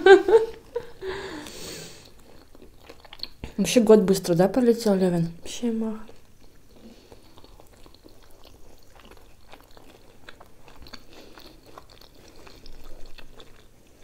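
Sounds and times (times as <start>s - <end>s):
chewing crunchy food: 1.4s - 3.9s, 5.4s - 14.0s.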